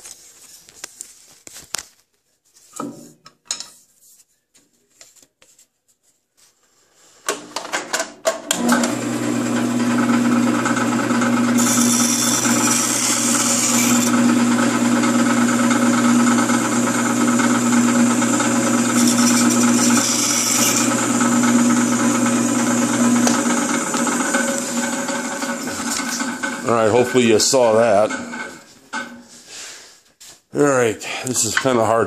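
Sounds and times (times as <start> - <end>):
bandsaw cutting wooden dowel: 8.5 - 29.2
bandsaw running: 8.6 - 29.2.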